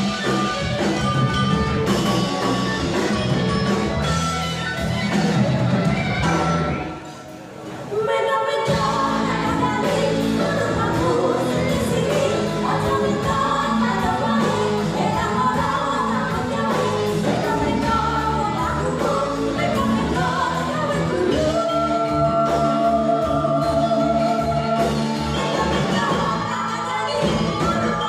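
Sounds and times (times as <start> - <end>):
electric guitar: 0.0 - 7.8, 8.7 - 28.0
drum kit: 0.0 - 28.0
women singing together: 8.0 - 28.0.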